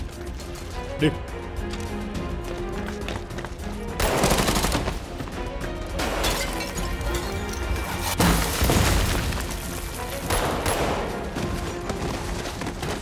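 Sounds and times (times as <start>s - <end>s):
tense background music: 0.0s - 13.0s
gunfire bursts: 4.0s - 5.0s.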